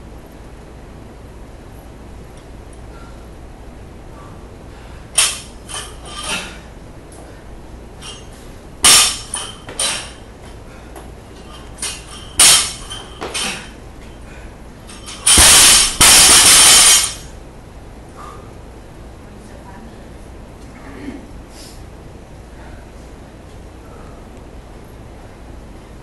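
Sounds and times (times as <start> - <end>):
barbell dropped on rubber platform: 5.2 - 6.5, 8.8 - 10.2, 11.8 - 13.8, 14.9 - 17.3
metal plates clinking on bar: 11.8 - 13.6, 14.9 - 17.2.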